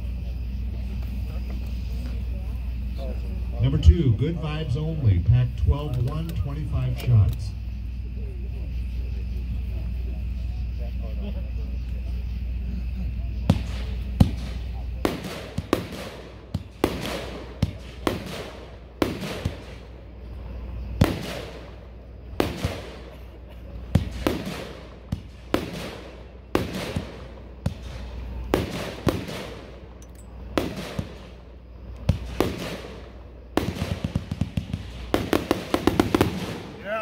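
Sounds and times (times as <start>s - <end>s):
fireworks launching and banging: 13.5s - 20.0s, 21.0s - 37.0s
firework hiss: 32.0s - 37.0s.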